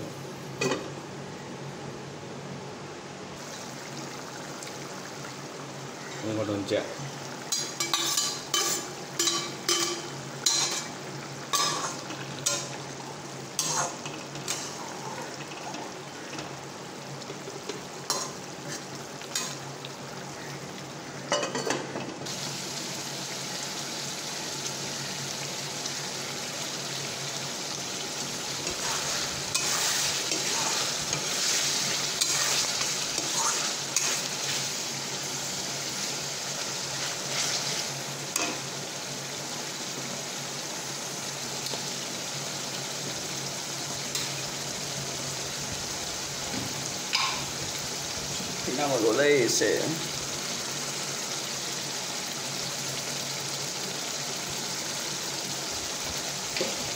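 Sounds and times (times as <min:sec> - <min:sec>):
meat sizzling: 0:03.4 - 0:56.9
metal spatula scraping a pan: 0:28.7 - 0:34.8, 0:37.0 - 0:37.9.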